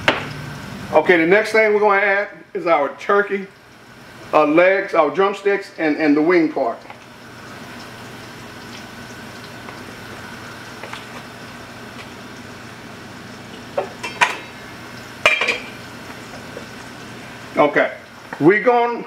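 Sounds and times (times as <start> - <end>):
gas burner hiss: 2.8 - 19.0
pot of water bubbling: 6.2 - 18.4.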